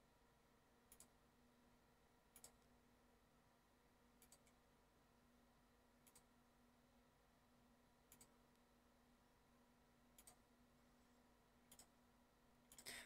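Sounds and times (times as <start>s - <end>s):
computer mouse clicks: 0.9s - 1.2s, 2.3s - 2.7s, 4.2s - 4.6s, 6.0s - 6.3s, 8.1s - 8.7s, 10.1s - 10.5s, 11.7s - 12.0s, 12.7s - 13.0s.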